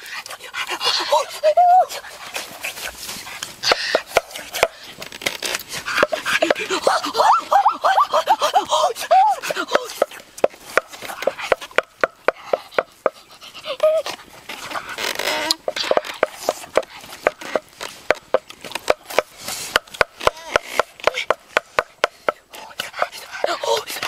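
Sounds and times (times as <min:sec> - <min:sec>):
campfire crackling and popping: 0:02.1 - 0:08.8, 0:09.6 - 0:13.2, 0:14.0 - 0:23.3
boy humming: 0:13.5 - 0:14.2.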